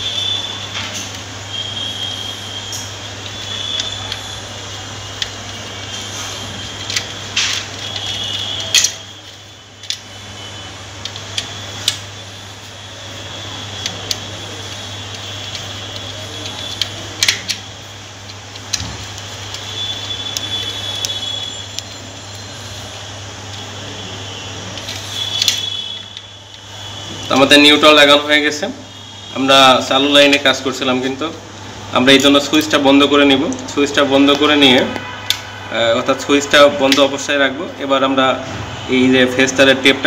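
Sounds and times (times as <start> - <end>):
screwdriver clicking and scraping: 6.6 - 10.0, 24.8 - 26.3.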